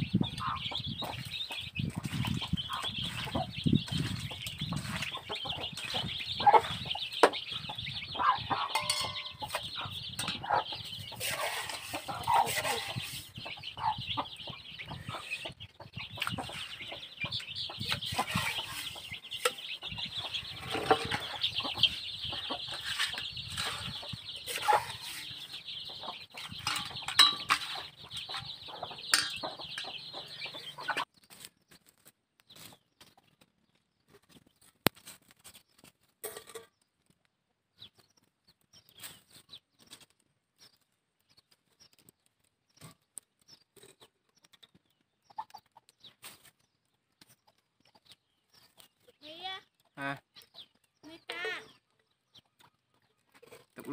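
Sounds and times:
hens clucking: 0:00.0 - 0:31.2, 0:44.7 - 0:46.5, 0:49.8 - 0:53.9
chicks peeping: 0:00.0 - 0:53.9.

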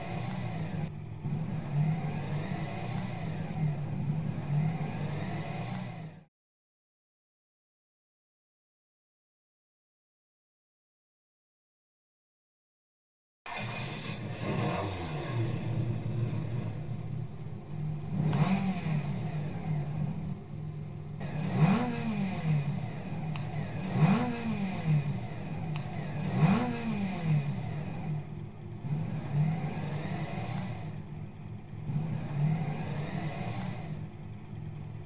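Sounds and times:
motor revving: 0:00.0 - 0:06.2, 0:13.5 - 0:17.0, 0:18.1 - 0:20.2, 0:21.2 - 0:28.2, 0:28.8 - 0:31.0, 0:31.9 - 0:34.0
sharp tick: 0:23.3 - 0:23.5, 0:25.7 - 0:25.9.

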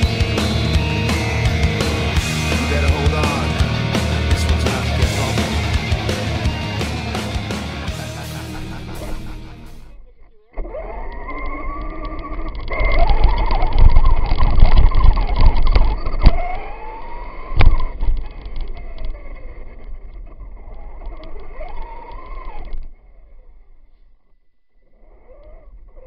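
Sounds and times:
electric motor whining: 0:00.0 - 0:23.8
toy truck rattling rumble: 0:10.6 - 0:23.7.

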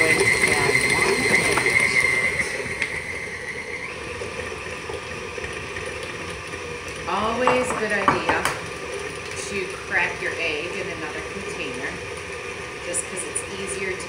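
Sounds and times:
stand mixer motor whine: 0:00.0 - 0:14.0
person speaking: 0:07.1 - 0:08.6
egg cracking tap: 0:07.4 - 0:08.8.

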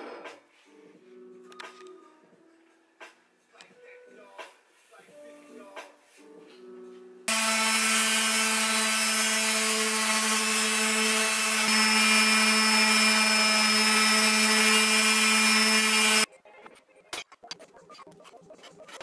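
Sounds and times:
orbital sander running on wood: 0:07.3 - 0:16.3.

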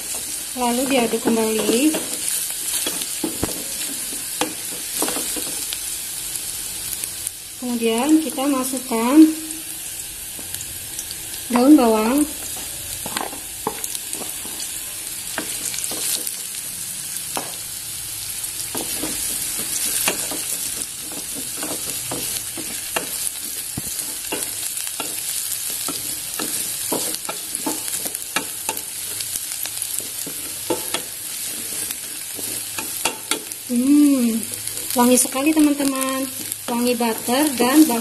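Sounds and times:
onions sizzling in oil: 0:00.0 - 0:38.0
wooden spatula scraping a pot: 0:18.8 - 0:33.4.

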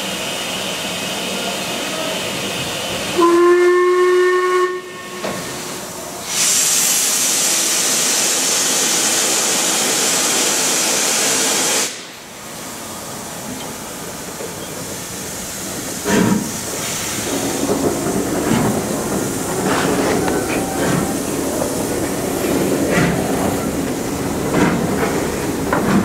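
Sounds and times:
loud hiss of escaping steam: 0:00.0 - 0:03.3, 0:04.9 - 0:26.0
steam locomotive whistle: 0:03.2 - 0:05.6
steam hissing: 0:04.5 - 0:26.0.

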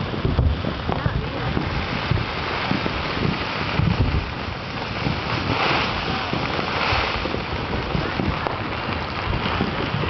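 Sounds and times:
distant fireworks popping: 0:00.0 - 0:10.0
wind on microphone: 0:00.0 - 0:10.0.

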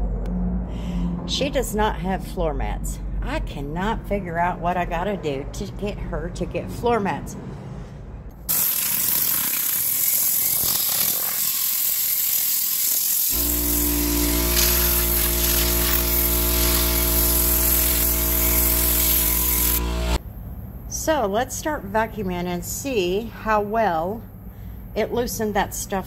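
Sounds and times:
compressed air hissing: 0:08.5 - 0:20.2
steady buzzing hum: 0:13.3 - 0:20.2.

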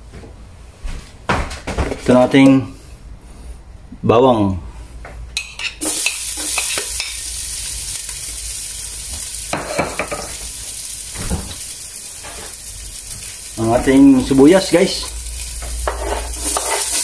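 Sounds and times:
garlic sizzling in hot oil: 0:05.8 - 0:17.0
utensil scraping a pot: 0:15.6 - 0:17.0.

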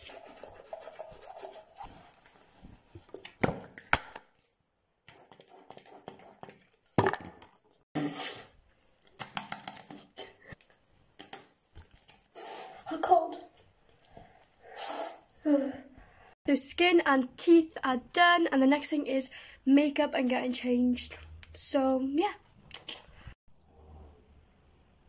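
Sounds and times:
toothbrush scrubbing teeth: 0:00.0 - 0:02.0.

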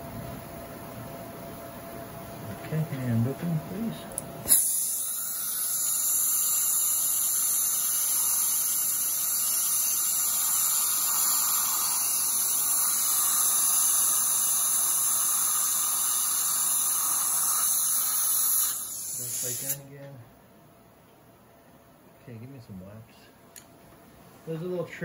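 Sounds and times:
dental drill whining: 0:04.4 - 0:19.8
air and water spray hiss: 0:04.5 - 0:19.8.

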